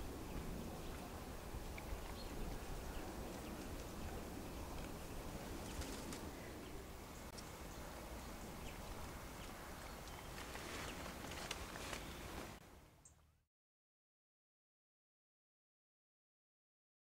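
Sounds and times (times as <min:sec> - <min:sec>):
low background hiss and rumble: 0:00.0 - 0:13.4
faint clicks and rustles: 0:03.3 - 0:06.4, 0:08.9 - 0:12.6.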